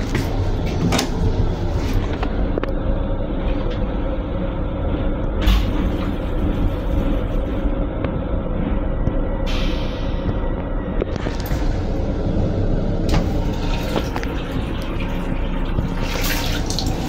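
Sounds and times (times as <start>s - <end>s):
sharp clunk inside railcar: 0.0s - 2.8s, 5.3s - 8.2s, 13.0s - 14.3s
train railcar rumbling: 0.0s - 17.0s.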